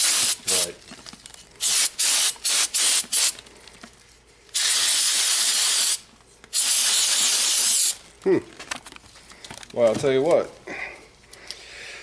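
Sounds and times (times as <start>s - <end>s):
aerosol can spraying: 0.0s - 0.7s, 1.6s - 3.4s, 4.5s - 8.0s.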